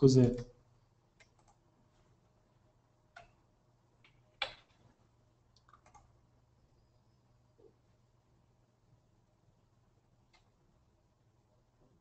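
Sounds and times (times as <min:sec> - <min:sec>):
computer clicks: 0:01.2 - 0:01.6, 0:03.1 - 0:03.4, 0:05.5 - 0:06.2.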